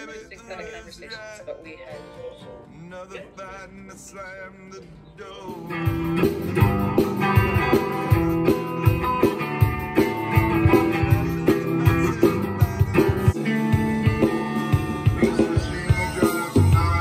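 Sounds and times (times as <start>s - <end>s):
electric guitar music: 4.9s - 17.0s.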